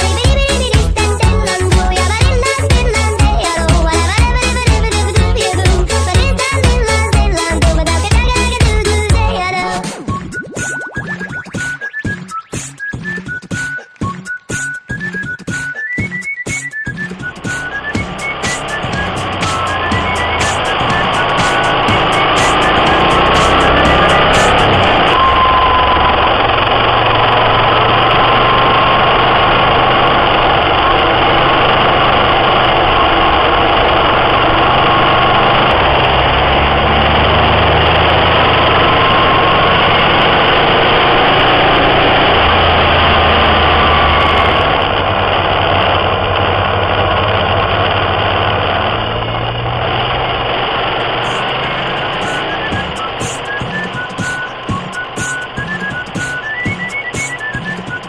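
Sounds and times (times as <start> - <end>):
motorcycle engine running: 17.0 - 58.0.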